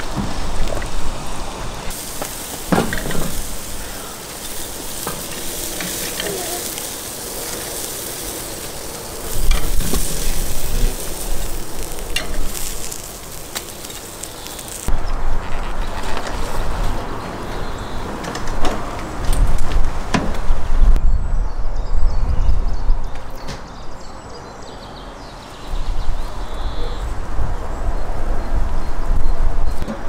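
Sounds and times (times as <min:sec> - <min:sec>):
meat sizzling on grill: 0:00.0 - 0:15.0.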